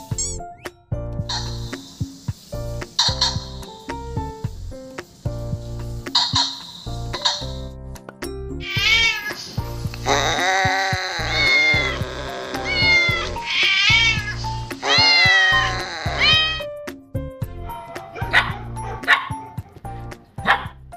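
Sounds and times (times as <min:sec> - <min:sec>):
background music: 0:00.0 - 0:20.9
cat meowing: 0:08.6 - 0:09.4, 0:10.1 - 0:16.7
small dog barking: 0:17.7 - 0:19.6, 0:20.4 - 0:20.8.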